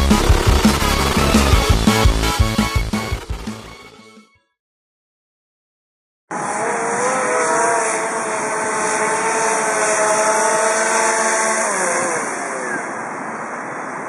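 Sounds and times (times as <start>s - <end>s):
drone propellers whining: 0.0s - 4.0s, 6.3s - 13.7s.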